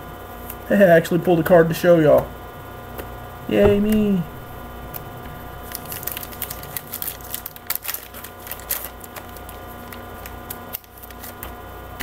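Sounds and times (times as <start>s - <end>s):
electrical hum: 1.2s - 10.7s.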